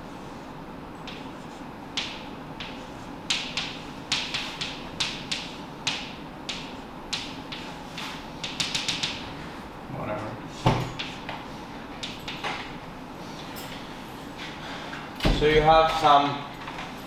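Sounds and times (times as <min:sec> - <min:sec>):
faint room hum: 0:00.0 - 0:17.0
chalk on blackboard: 0:07.2 - 0:09.1.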